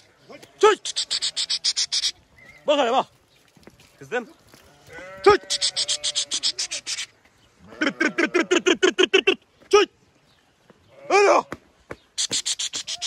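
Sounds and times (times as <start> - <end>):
sheep bleating: 1.0 - 2.9, 4.6 - 7.0, 7.6 - 8.8, 10.9 - 11.6.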